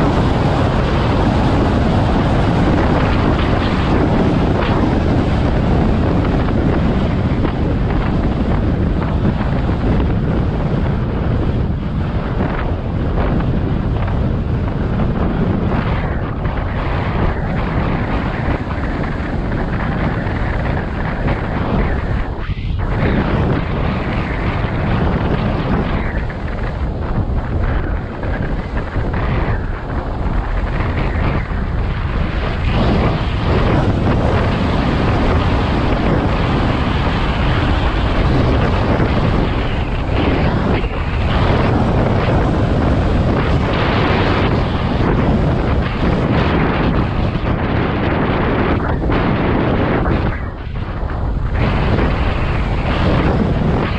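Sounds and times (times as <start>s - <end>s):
wind buffeting microphone: 0.0s - 53.9s.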